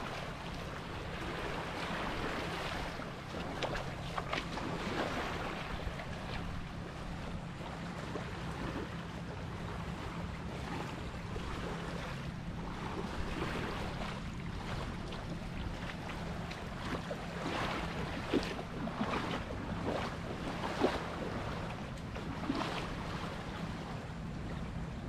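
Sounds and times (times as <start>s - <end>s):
waves lapping on pebbly shore: 0.0s - 6.6s, 12.6s - 23.9s
low steady hum: 0.0s - 25.0s.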